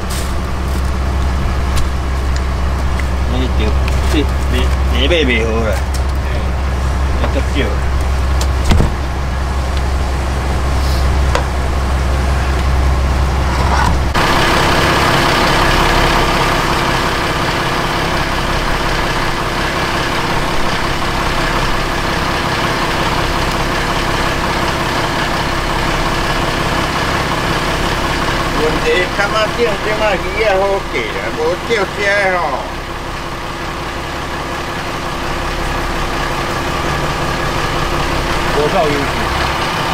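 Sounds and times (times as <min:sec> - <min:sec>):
boat engine humming: 0:00.0 - 0:39.9
sharp knock: 0:08.6 - 0:09.0.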